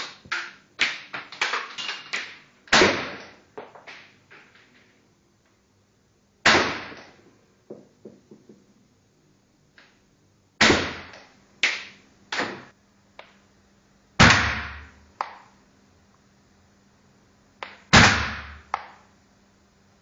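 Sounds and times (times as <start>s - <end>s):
airsoft pistol shots: 2.7s - 3.4s, 6.4s - 7.1s, 10.6s - 12.7s, 14.2s - 14.9s, 17.7s - 19.0s.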